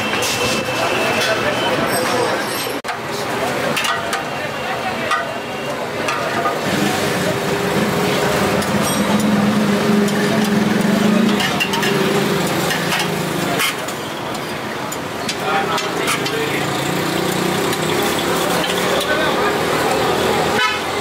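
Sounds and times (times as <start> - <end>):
vehicle engine humming: 6.5 - 14.1.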